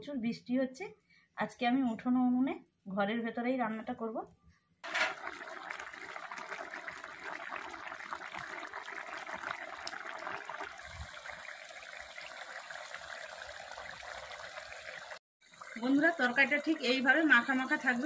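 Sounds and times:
curry bubbling and popping: 0:04.8 - 0:17.5.

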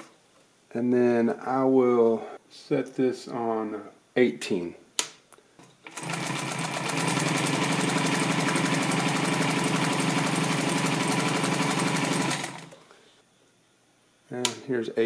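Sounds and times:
industrial sewing machine stitching: 0:05.9 - 0:12.8.

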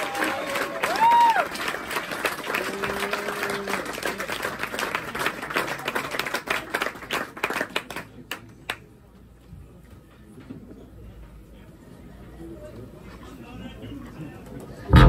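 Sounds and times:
audience applause: 0:00.0 - 0:08.5.

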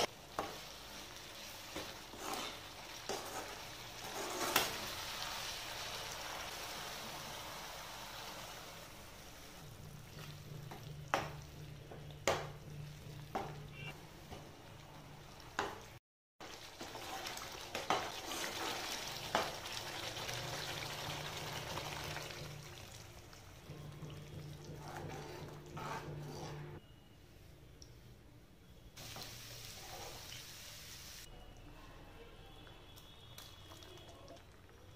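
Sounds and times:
sauce sizzling in a pan: 0:00.0 - 0:10.6, 0:16.4 - 0:23.1, 0:29.0 - 0:31.3.

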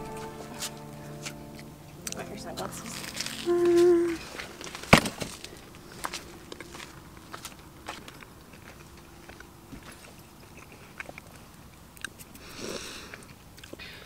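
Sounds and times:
person chewing crunchy sandwich: 0:04.3 - 0:13.8.

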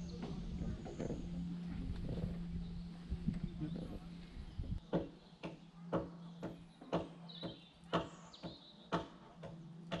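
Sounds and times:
birds chirping: 0:00.0 - 0:10.0
hammering on timber: 0:04.8 - 0:10.0.

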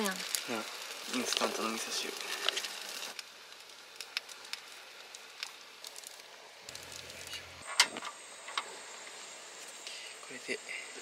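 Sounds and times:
low hiss: 0:00.0 - 0:11.0.

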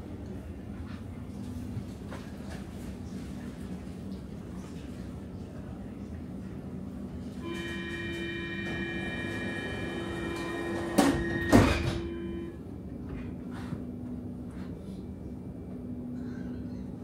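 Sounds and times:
door-closing warning tone: 0:07.4 - 0:12.6
sliding doors shutting thuds: 0:09.2 - 0:12.4.

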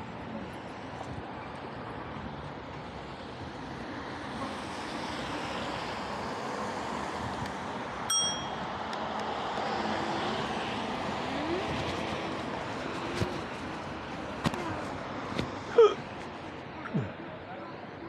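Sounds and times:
cars passing on wet road: 0:00.0 - 0:16.8
bicycle bell ding: 0:08.1 - 0:08.8.

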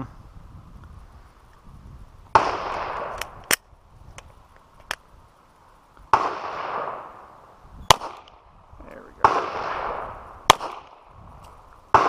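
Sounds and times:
pistol shots: 0:06.1 - 0:07.1, 0:07.9 - 0:08.4, 0:09.2 - 0:11.0
fainter sharp cracks: 0:09.2 - 0:12.0.

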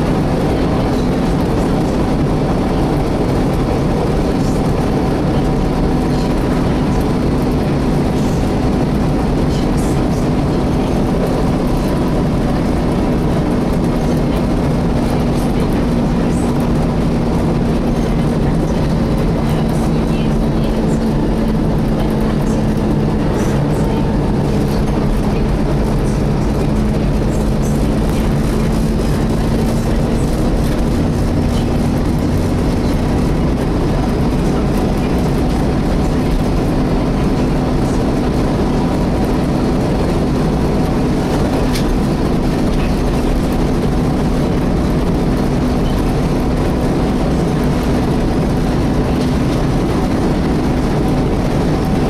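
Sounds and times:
bus engine running: 0:00.0 - 0:52.0
engine cooling fan whine: 0:00.0 - 0:52.0.

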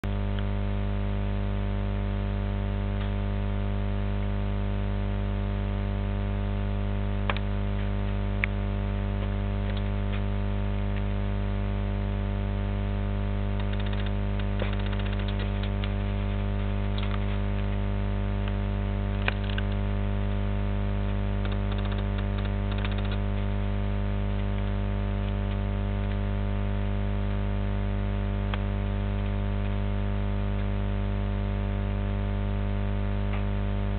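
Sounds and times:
electrical hum: 0:00.0 - 0:33.9
faint crackle: 0:00.0 - 0:33.9
sharp clicks: 0:07.3 - 0:07.5, 0:09.2 - 0:10.2, 0:13.6 - 0:16.0, 0:16.9 - 0:17.7, 0:19.2 - 0:19.8, 0:21.4 - 0:23.5.

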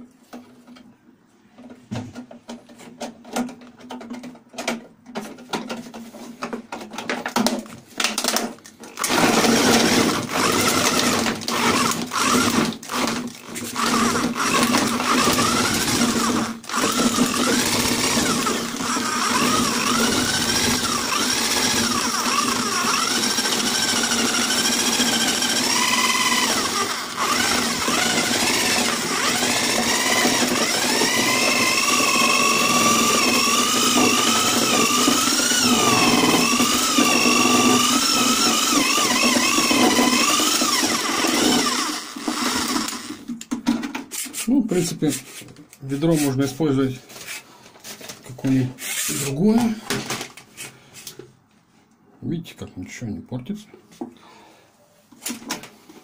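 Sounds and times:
electric drill chopping apples: 0:07.3 - 0:43.9.

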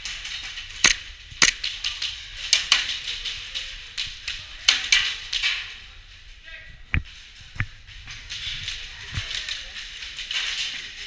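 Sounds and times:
airsoft guns firing: 0:00.8 - 0:01.7.

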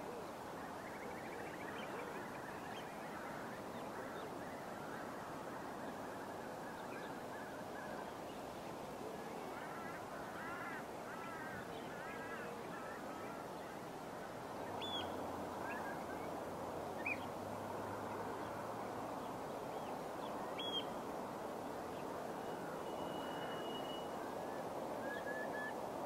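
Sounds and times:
background hiss: 0:00.0 - 0:26.0
waterbirds calling: 0:09.5 - 0:21.0
rising-and-falling bird calls: 0:22.5 - 0:25.8.

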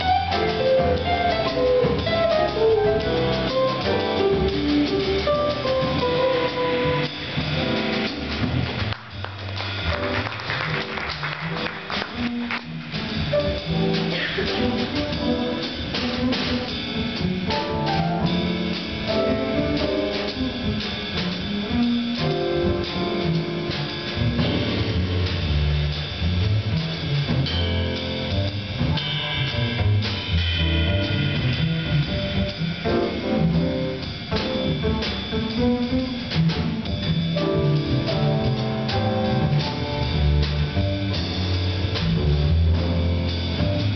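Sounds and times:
drum kit: 0:00.0 - 0:43.9
piano: 0:00.0 - 0:43.9
upright bass: 0:00.0 - 0:43.9.

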